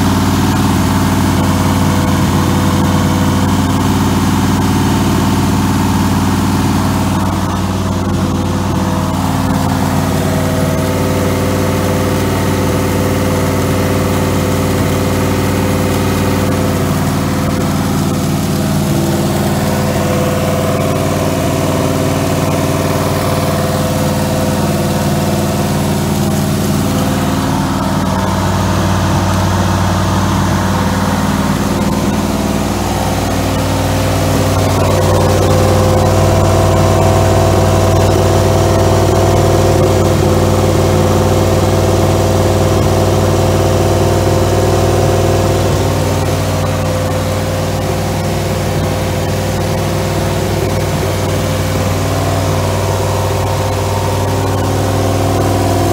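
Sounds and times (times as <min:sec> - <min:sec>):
car engine running steadily: 0:00.0 - 0:55.9.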